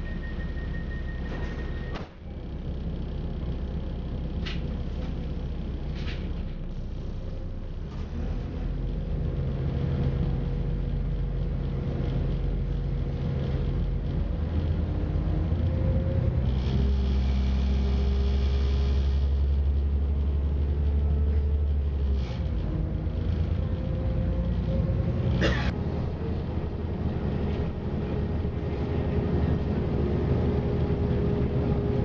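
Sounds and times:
train running noise: 0.0 - 2.2, 16.2 - 32.0
train diesel engine drone: 0.0 - 32.0.

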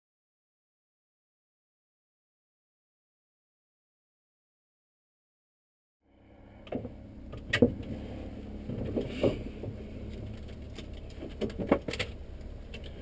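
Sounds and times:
aircraft engine drone: 6.1 - 13.0
sharp clicks and knocks: 6.7 - 8.0, 8.6 - 13.0.

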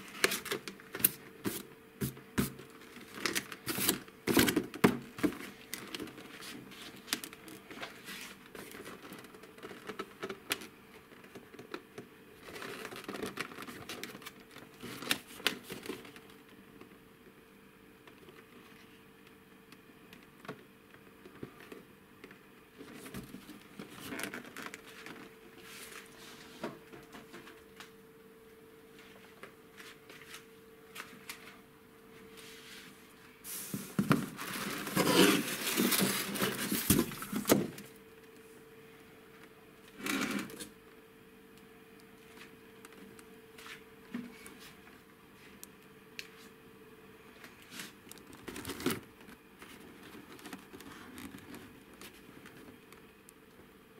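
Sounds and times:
cardboard scraping and rustling: 0.0 - 10.0, 32.4 - 37.9
faint steady hum: 0.0 - 53.9.

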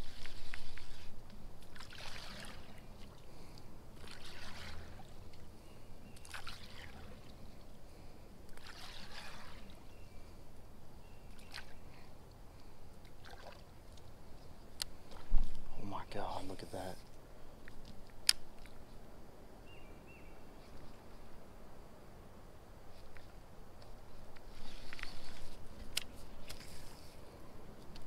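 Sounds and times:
water splashing around kayak: 0.0 - 5.5, 6.1 - 10.1, 13.0 - 14.0.

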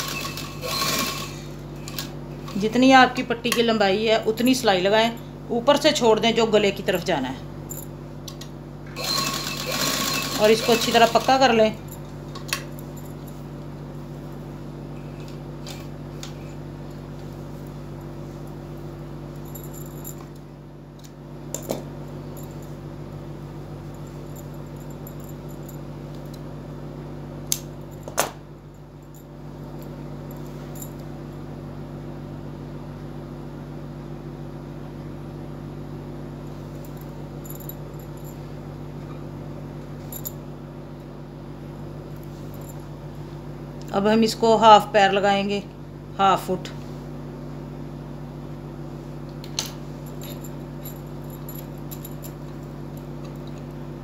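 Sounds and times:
sewing machine hum: 0.0 - 2.6, 8.9 - 11.8.

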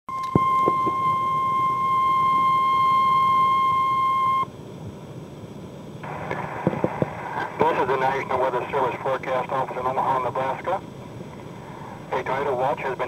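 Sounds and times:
high alarm beep: 0.1 - 4.5
radio static hiss: 5.9 - 13.0.

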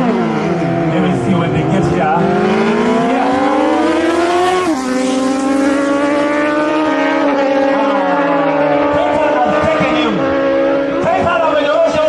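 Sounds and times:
motorcycle engines accelerating: 0.0 - 12.0.

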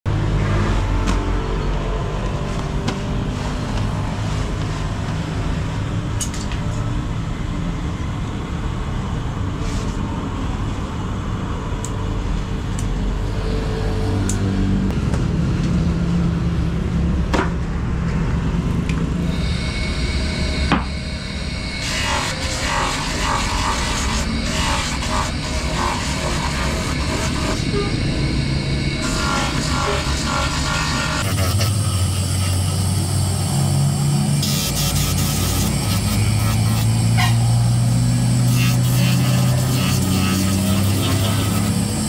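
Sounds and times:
low workshop rumble: 9.0 - 42.0
buffing wheel rasping rubber: 21.7 - 28.1, 28.9 - 33.1, 34.4 - 42.0.

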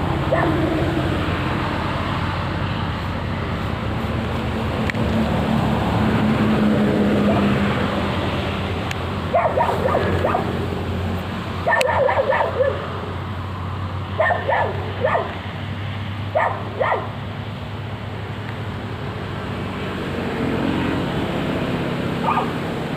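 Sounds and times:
dog barking: 0.3 - 0.6, 9.3 - 10.6, 11.6 - 12.8, 14.2 - 15.4, 16.3 - 17.2, 22.2 - 22.6.

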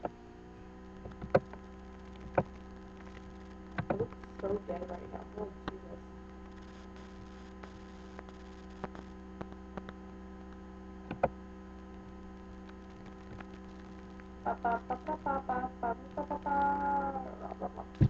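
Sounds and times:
electrical mains hum: 0.0 - 18.0
faint clicks: 5.6 - 14.3.

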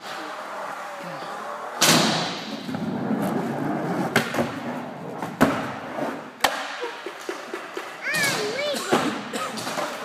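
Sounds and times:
skateboard rolling: 2.5 - 8.5
skateboard clacks: 6.4 - 10.0.

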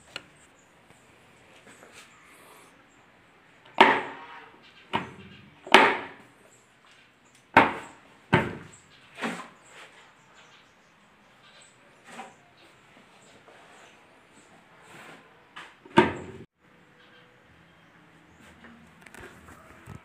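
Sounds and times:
sharp knocks on wooden cabinet door: 7.6 - 8.7.

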